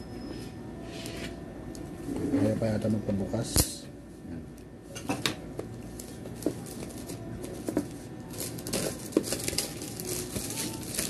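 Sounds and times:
plastic wrapping crinkling: 5.9 - 11.0.

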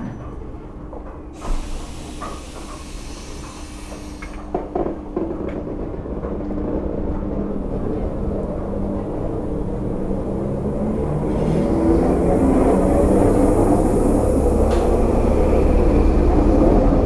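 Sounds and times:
train clanks: 0.0 - 17.0
train motors humming: 0.0 - 17.0
air brakes hissing: 1.4 - 4.6.

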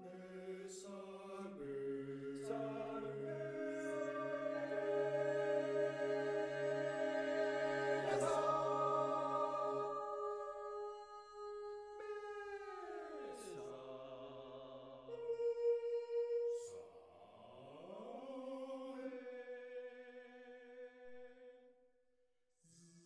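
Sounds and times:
mixed choir singing unaccompanied: 0.0 - 15.4.

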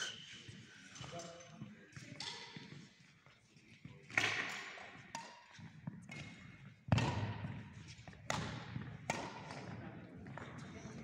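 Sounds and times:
racket striking shuttlecock: 5.1 - 5.5, 6.1 - 7.7, 8.3 - 9.8.

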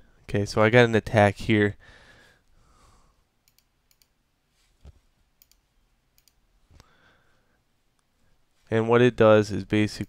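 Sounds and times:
faint computer mouse clicks: 3.4 - 4.2, 5.4 - 5.6, 6.2 - 6.9.

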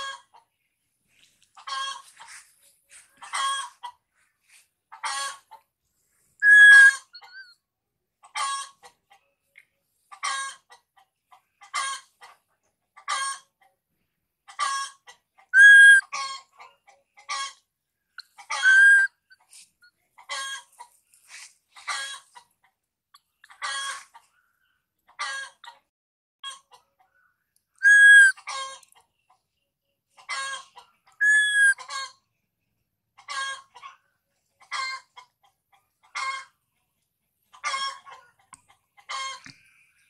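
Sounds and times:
baby monkey crying: 6.4 - 7.4, 15.6 - 16.0, 18.5 - 19.1, 27.8 - 28.3, 31.2 - 31.8.

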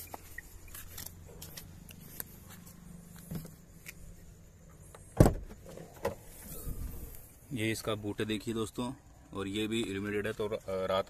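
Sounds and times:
handling clicks and rustles: 0.0 - 6.4.

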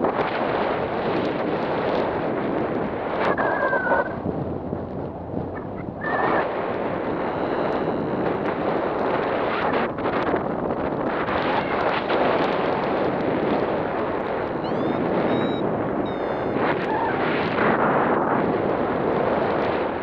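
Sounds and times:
wind buffeting microphone: 0.0 - 20.0
brief high tones: 14.6 - 16.6.

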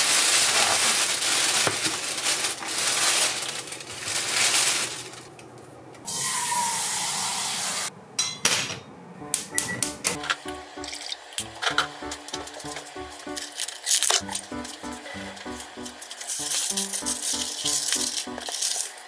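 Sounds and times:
plastic bag rustling: 0.0 - 5.4, 12.4 - 19.0.

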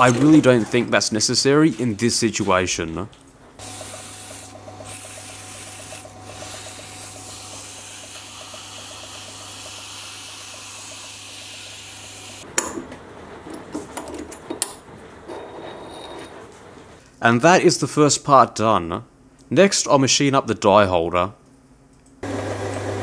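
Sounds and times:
abrasive paper rubbing hiss: 3.6 - 12.4
lathe motor humming: 3.6 - 12.5, 22.2 - 23.0.

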